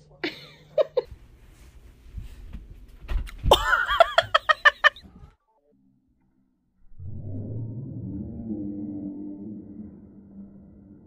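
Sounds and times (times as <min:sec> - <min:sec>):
person laughing: 0:00.2 - 0:01.1, 0:03.5 - 0:05.1.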